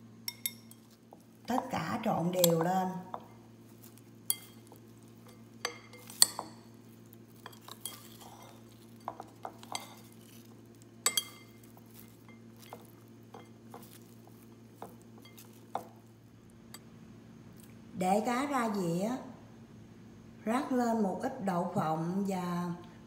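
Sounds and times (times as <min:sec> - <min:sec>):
utensils clinking glass bowl: 0:00.3 - 0:06.7, 0:07.3 - 0:16.0.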